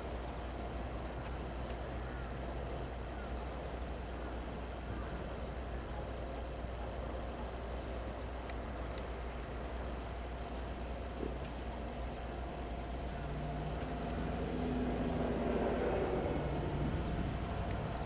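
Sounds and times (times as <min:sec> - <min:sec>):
distant engine hum: 0:00.0 - 0:18.0
low rumble: 0:08.4 - 0:18.0.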